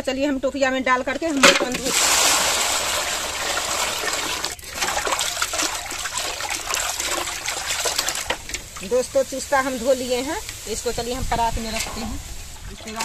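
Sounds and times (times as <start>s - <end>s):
water pouring into a steel tub: 1.3s - 13.0s.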